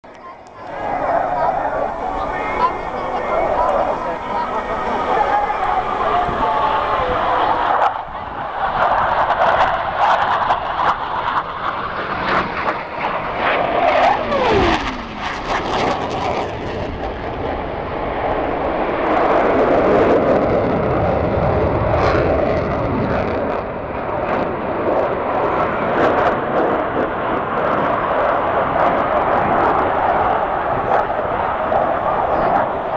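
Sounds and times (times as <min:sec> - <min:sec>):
jets flying past overhead: 0:00.1 - 0:32.9
falling jet whine: 0:00.2 - 0:25.4.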